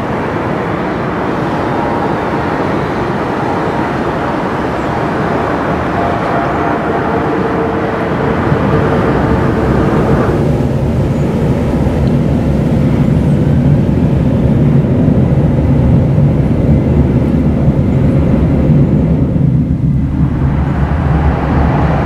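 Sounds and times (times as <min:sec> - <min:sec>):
faint whine: 0:00.0 - 0:22.0
jet engines running: 0:00.0 - 0:22.0.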